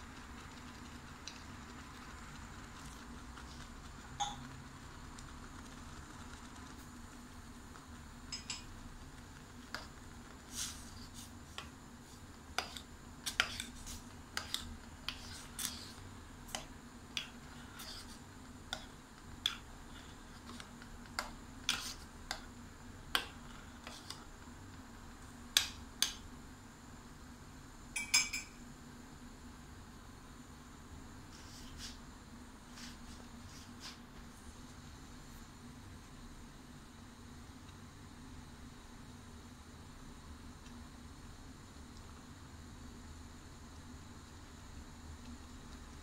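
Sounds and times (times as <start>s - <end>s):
steady low hum: 0.0s - 46.0s
metal spoon clinking in saucepan: 28.0s - 28.6s.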